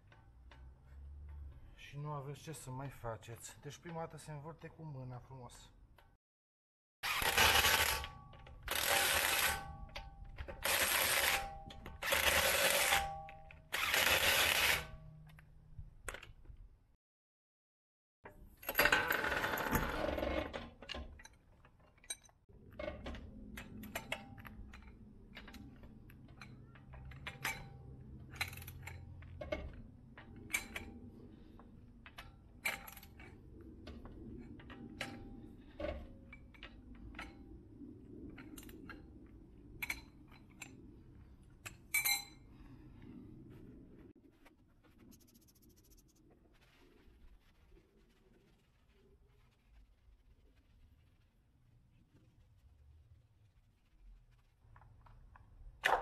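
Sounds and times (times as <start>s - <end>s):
metal tools clinking: 41.6s - 42.5s.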